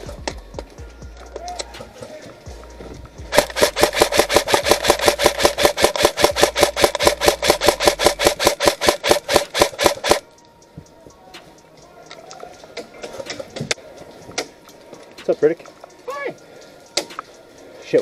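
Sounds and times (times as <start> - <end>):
airsoft rifle firing full auto: 3.3 - 10.2.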